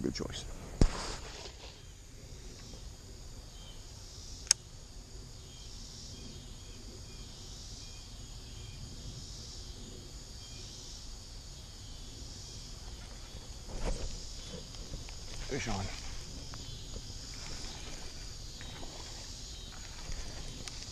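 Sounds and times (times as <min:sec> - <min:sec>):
insect chorus: 0:00.0 - 0:20.9
sharp click: 0:04.4 - 0:04.6.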